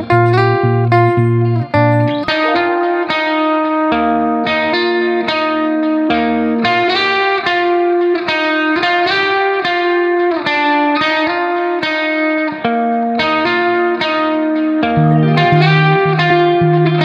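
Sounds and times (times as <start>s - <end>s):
plucked string melody: 0.0s - 9.8s, 14.4s - 17.0s.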